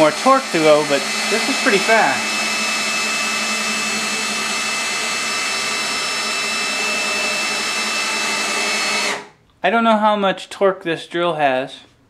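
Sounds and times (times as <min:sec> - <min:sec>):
cordless drill whirring: 0:00.0 - 0:09.4.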